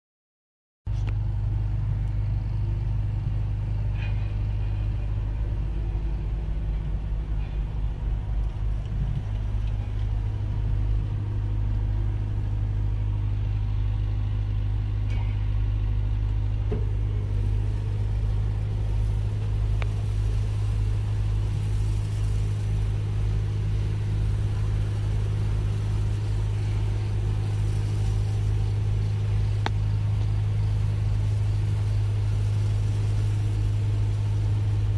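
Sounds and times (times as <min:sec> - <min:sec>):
machine engine humming: 0:00.9 - 0:34.9
water spray hissing: 0:16.7 - 0:34.9.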